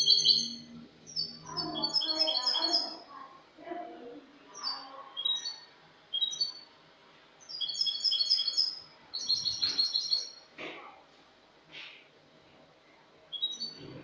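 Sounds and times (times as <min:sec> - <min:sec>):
finch singing: 0:00.0 - 0:03.1, 0:04.5 - 0:06.7, 0:07.4 - 0:10.5, 0:13.3 - 0:14.0.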